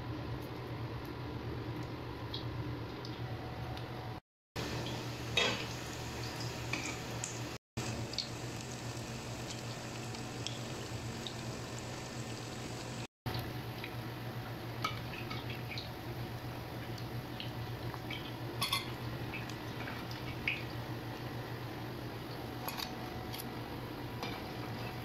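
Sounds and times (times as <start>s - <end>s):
hot oil sizzling: 4.6s - 13.1s.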